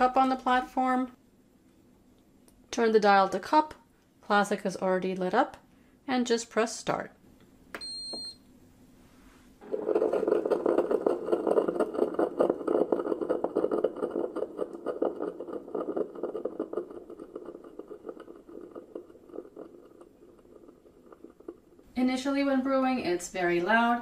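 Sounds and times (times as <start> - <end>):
coffee maker crackling: 9.6 - 21.9.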